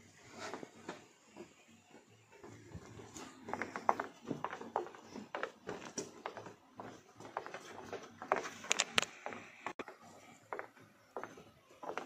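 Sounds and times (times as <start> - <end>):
footsteps on wooden stairs: 2.4 - 8.6.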